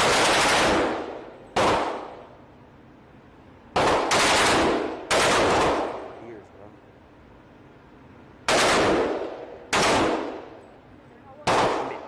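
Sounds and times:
rifle firing single shots: 0:00.0 - 0:02.2, 0:03.7 - 0:06.2, 0:08.5 - 0:10.6, 0:11.4 - 0:12.0.

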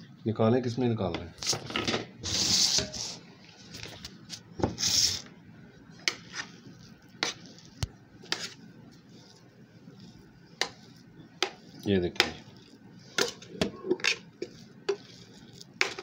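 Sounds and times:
spatula scraping bowl: 0:06.0 - 0:16.0.

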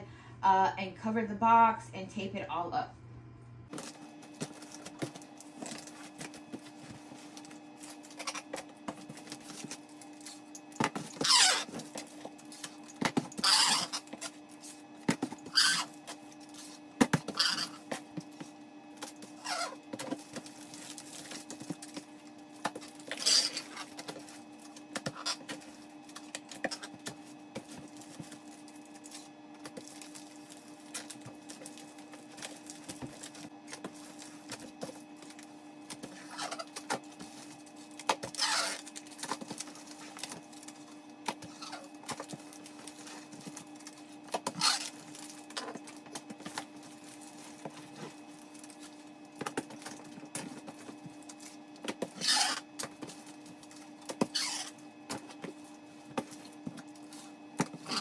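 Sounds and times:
packing tape ripping off roll: 0:36.1 - 0:40.6.

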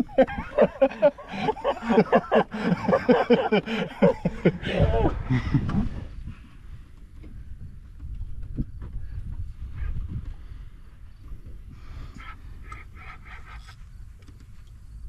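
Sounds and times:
low background noise: 0:00.0 - 0:09.6.

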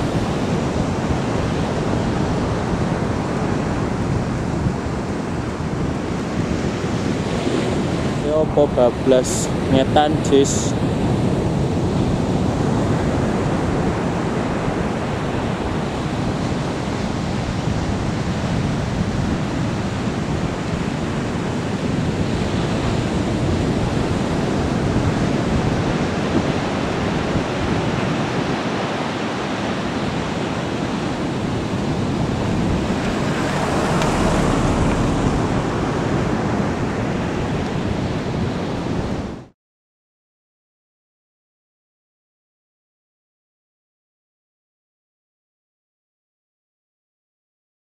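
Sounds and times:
wind on microphone: 0:00.0 - 0:39.5
jet engines rushing: 0:30.5 - 0:38.5.

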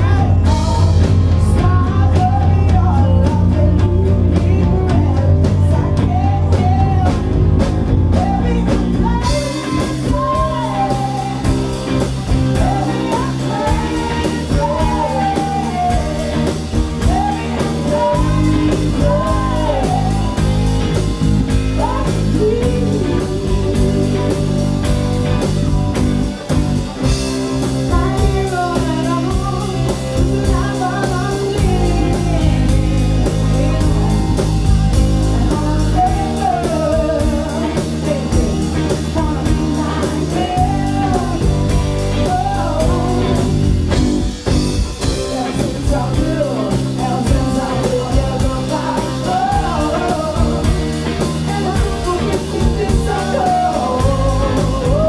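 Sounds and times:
drum kit beat: 0:00.0 - 0:55.0
electric bass: 0:00.0 - 0:55.0
electric guitars: 0:00.0 - 0:55.0
lead vocal singing: 0:00.0 - 0:55.0.

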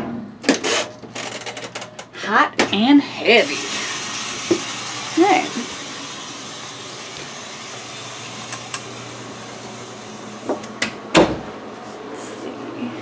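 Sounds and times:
washing machine filling: 0:03.2 - 0:10.8.

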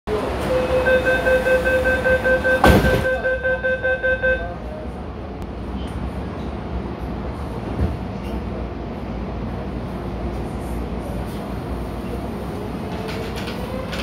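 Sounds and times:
train door warning beeps: 0:00.4 - 0:04.6
loud thump: 0:02.6 - 0:03.2
train rumble: 0:04.4 - 0:14.0.

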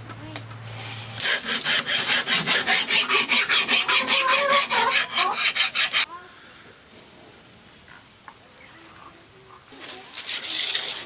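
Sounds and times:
rasp scraping bamboo: 0:01.2 - 0:06.1, 0:10.0 - 0:11.0.

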